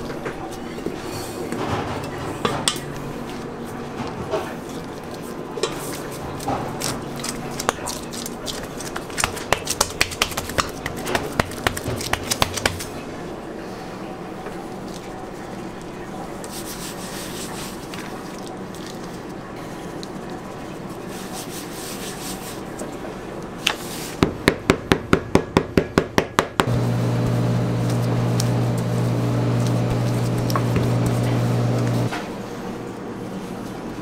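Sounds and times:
powder shaken over dough: 5.0 - 13.0
steady machine hum: 26.6 - 34.0.

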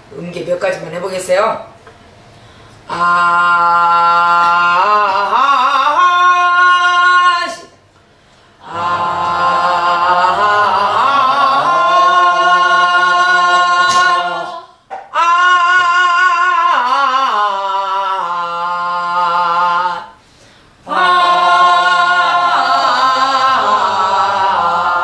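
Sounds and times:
woman singing long held notes: 2.9 - 7.8.

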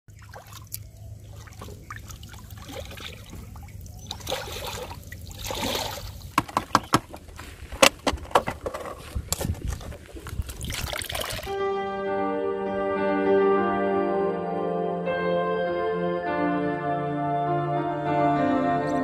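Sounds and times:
water trickling and dripping: 0.1 - 6.4, 10.3 - 11.6
drips and splashes: 0.1 - 6.8, 10.4 - 11.6.

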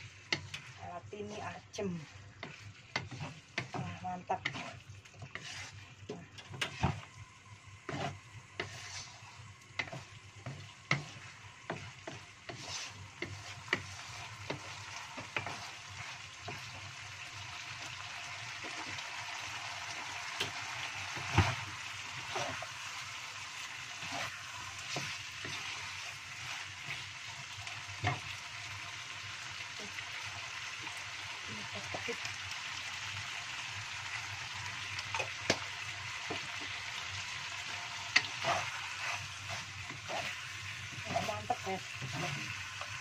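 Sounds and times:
sauce sizzling: 0.0 - 43.0
wooden spatula knocking in a wok: 2.4 - 4.7, 9.8 - 15.6.

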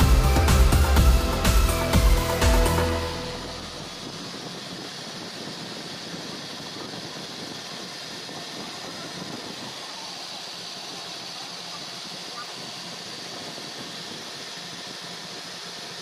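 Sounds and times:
background music: 0.0 - 4.0
milling machine cutting metal: 0.0 - 16.0.

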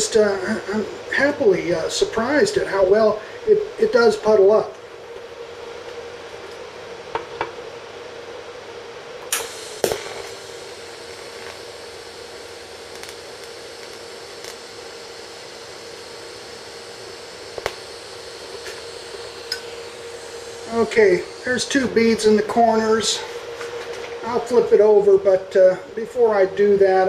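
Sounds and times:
welding arc hiss and hum: 0.0 - 27.0
sharp welding clicks: 9.2 - 15.1, 16.2 - 22.4.

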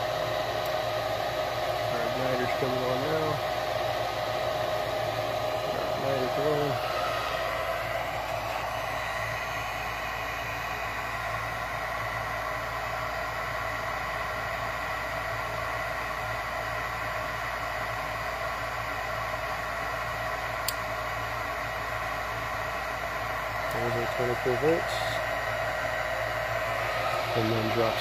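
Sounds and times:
faint hum: 0.0 - 28.0
furnace fan whirring: 0.0 - 28.0.

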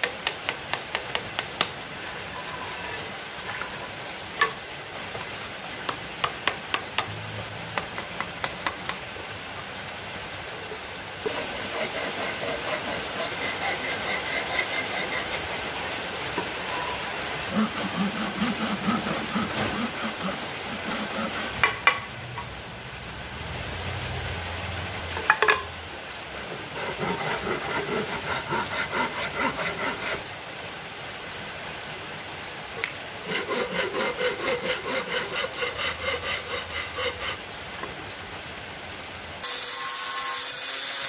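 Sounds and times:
rasping strokes on wood: 11.3 - 15.8, 16.4 - 22.0, 26.4 - 30.2, 33.2 - 37.4.

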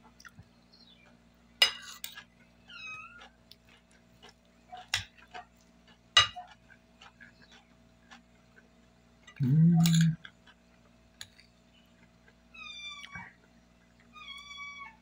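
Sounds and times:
cutlery clinking on a plate: 1.6 - 2.2, 6.2 - 6.4, 9.3 - 10.2.

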